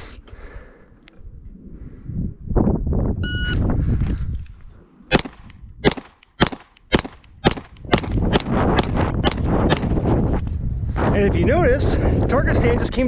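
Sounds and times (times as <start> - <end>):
wind buffeting microphone: 0.0 - 6.0, 7.0 - 13.0
pistol shots: 5.1 - 10.0.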